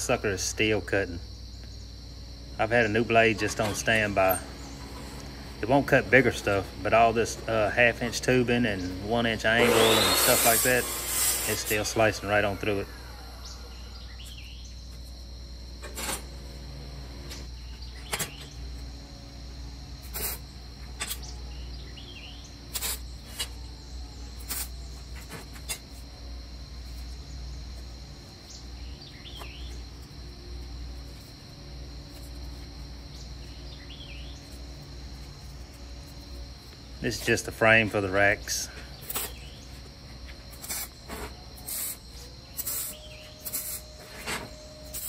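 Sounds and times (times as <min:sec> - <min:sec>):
low hum: 0:00.0 - 0:10.2
high whine: 0:00.0 - 0:45.0.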